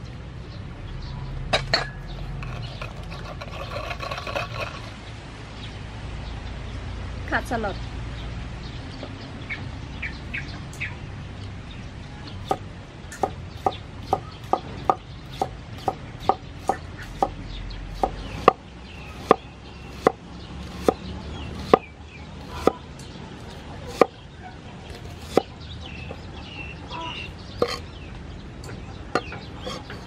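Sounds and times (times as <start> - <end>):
cleaver chopping on wooden board: 13.2 - 17.4, 18.0 - 22.8, 23.9 - 24.2, 24.9 - 25.5
faint bird calls: 23.8 - 28.0.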